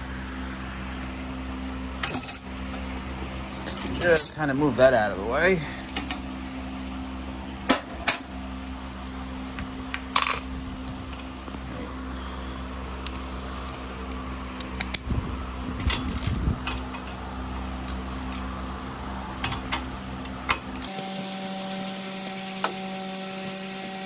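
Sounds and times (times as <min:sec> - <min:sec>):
steady background hum: 0:00.0 - 0:24.0
metal tools clinking: 0:02.0 - 0:02.8, 0:03.6 - 0:04.5
ratchet wrench clicking: 0:15.9 - 0:17.0, 0:17.8 - 0:18.5, 0:20.8 - 0:24.0.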